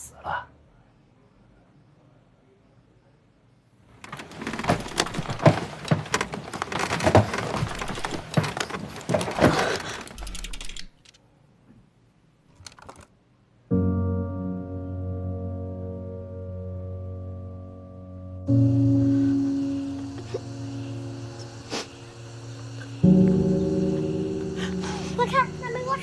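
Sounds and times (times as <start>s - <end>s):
fabric and straps rustling: 4.0s - 10.4s
low sustained musical tone: 13.7s - 26.0s.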